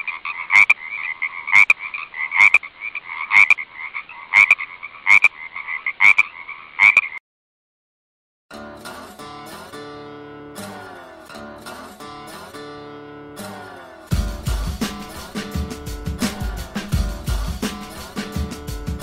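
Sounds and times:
strummed and plucked guitar music: 8.5 - 19.0.

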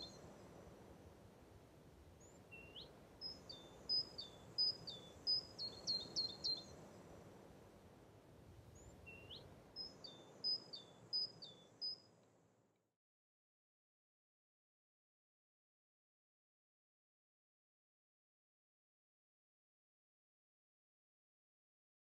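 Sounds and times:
songbird singing: 0.0 - 0.7, 2.1 - 7.3, 8.7 - 12.2
faint background noise: 0.0 - 13.0.

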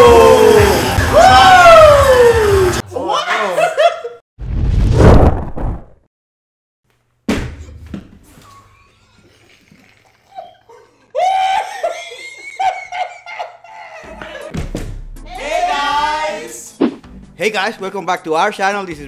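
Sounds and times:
group of people laughing: 3.2 - 4.2, 10.3 - 14.5.

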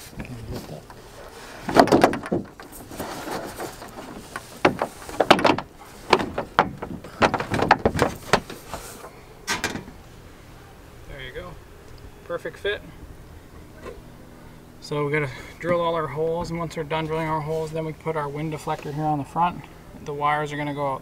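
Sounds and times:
solar panel scraping and knocking: 0.0 - 10.0.

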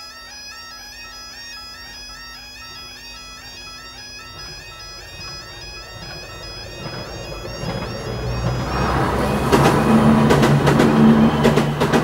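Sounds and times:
level crossing warbling alarm: 3.2 - 12.0.

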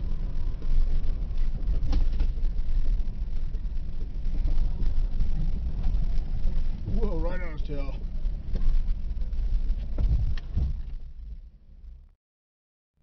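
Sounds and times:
engine low rumble: 0.0 - 12.2
knocks and rattles from bumpy ride: 0.9 - 2.5, 9.7 - 11.4.

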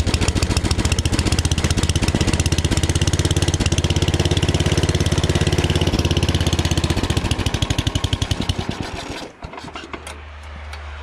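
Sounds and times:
snowblower engine running: 0.0 - 10.0.

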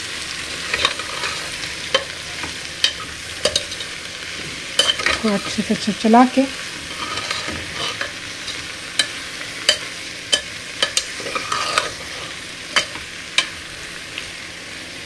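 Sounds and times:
vegetables sizzling: 0.0 - 15.0
metal spatula knocking pot: 9.0 - 11.1.

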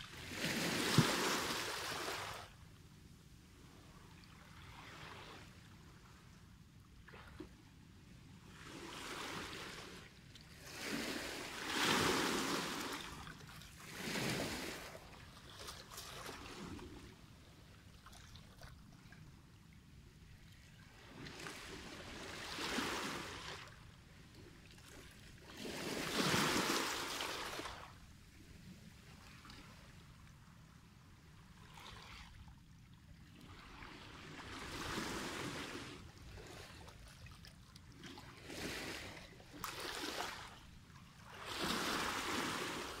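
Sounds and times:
waves washing over stony shore: 10.6 - 13.2, 13.9 - 15.0.

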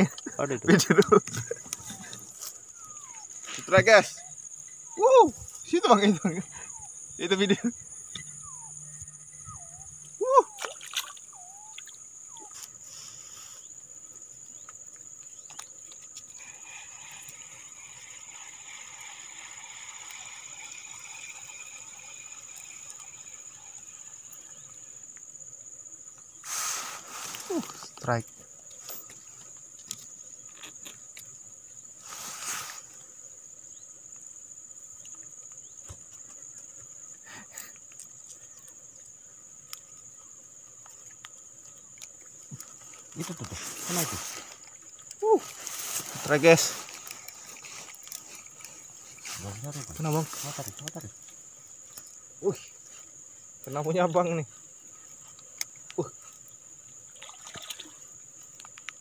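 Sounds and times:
insects chirring: 0.0 - 59.0
rustle: 0.0 - 59.0
fuller hiss: 12.6 - 13.8, 25.8 - 28.2, 31.8 - 33.5, 43.2 - 55.1.

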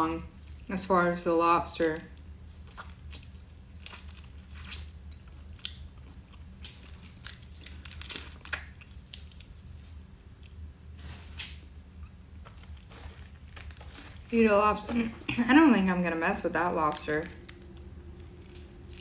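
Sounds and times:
steady low hum: 0.0 - 19.0
chewing: 2.1 - 10.6.

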